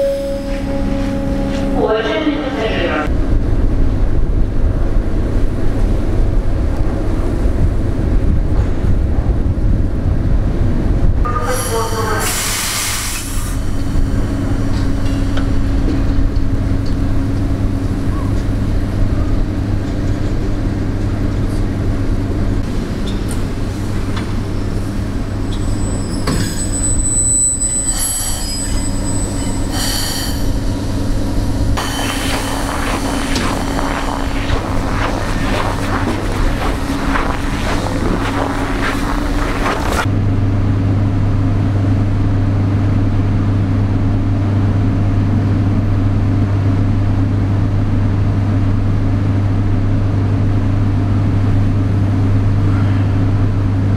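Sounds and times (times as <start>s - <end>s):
train electrical hum: 0.0s - 53.9s.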